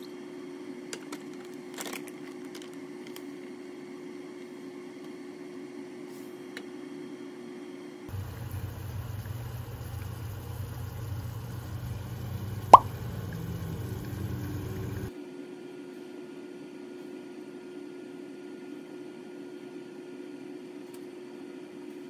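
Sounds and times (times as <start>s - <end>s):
low kitchen hum: 2.8s - 15.1s
syrup drop plopping into water: 12.6s - 13.6s.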